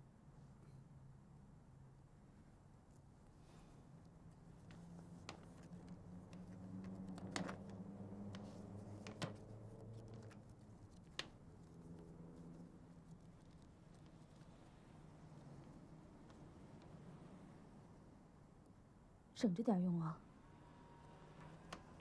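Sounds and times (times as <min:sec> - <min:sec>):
banknotes rustling: 0:04.4 - 0:16.8.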